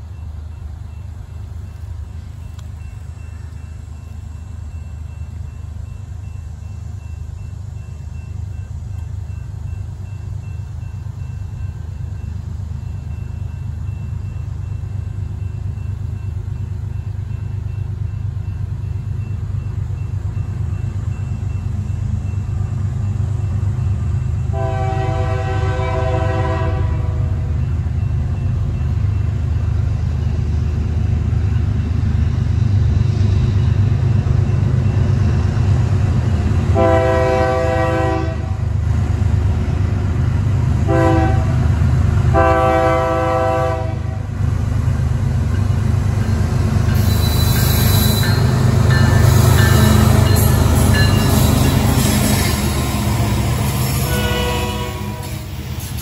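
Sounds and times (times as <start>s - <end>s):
low locomotive engine rumble: 0.0s - 56.0s
train air horn blasts: 24.5s - 27.5s, 36.7s - 38.6s, 40.8s - 41.6s, 42.3s - 44.3s, 53.6s - 55.6s.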